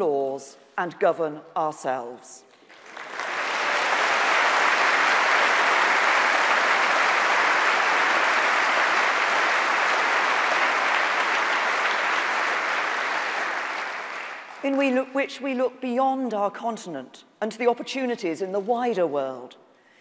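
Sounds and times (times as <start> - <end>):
audience applauding: 2.6 - 14.9.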